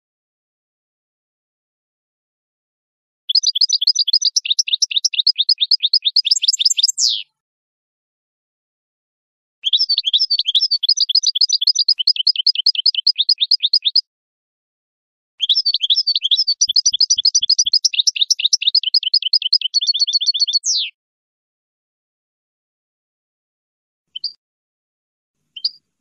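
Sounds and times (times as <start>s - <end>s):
goldfinch twittering: 3.3s - 7.2s, 9.7s - 14.0s, 15.4s - 20.9s.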